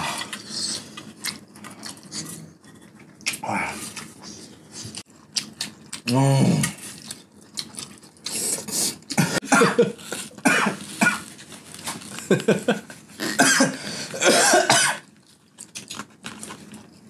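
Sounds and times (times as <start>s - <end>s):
man clearing throat: 9.2s - 11.2s, 13.2s - 15.0s
man coughing: 9.2s - 11.2s, 13.4s - 15.0s.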